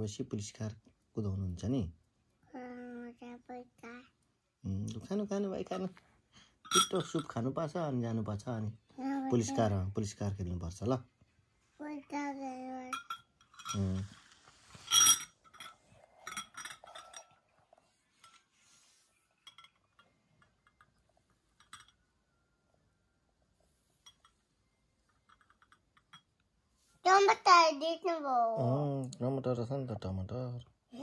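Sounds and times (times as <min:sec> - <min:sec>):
metal spoon clinking on glass bowl: 0:06.7 - 0:07.4, 0:12.9 - 0:14.0, 0:14.8 - 0:17.4, 0:19.4 - 0:21.0, 0:21.6 - 0:22.0.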